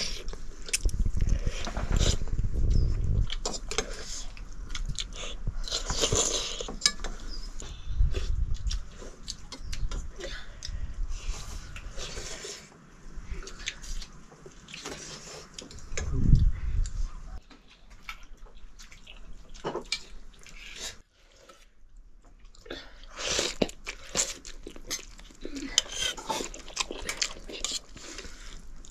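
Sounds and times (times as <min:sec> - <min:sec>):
people chewing noodles: 0:00.0 - 0:28.9.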